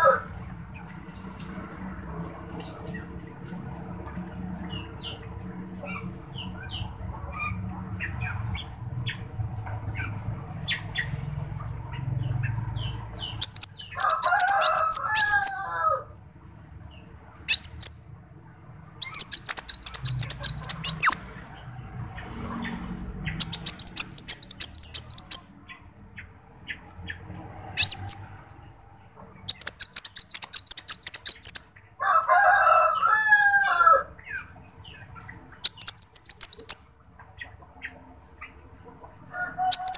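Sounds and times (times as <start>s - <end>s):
bird chattering chirps: 11.9s - 15.5s, 17.4s - 18.0s, 19.0s - 21.3s, 23.3s - 28.3s, 29.4s - 31.7s, 34.3s - 38.6s, 39.7s - 39.9s.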